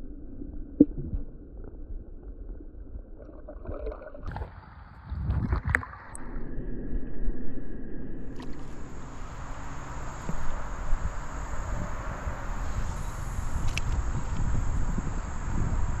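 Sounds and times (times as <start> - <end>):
water sloshing and gurgling: 0.0 - 14.5
steady high hiss: 8.3 - 16.0.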